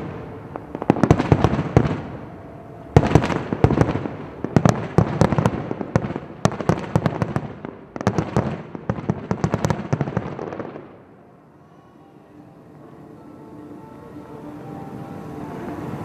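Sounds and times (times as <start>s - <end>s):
fireworks bangs: 0.0s - 11.2s, 14.6s - 16.0s.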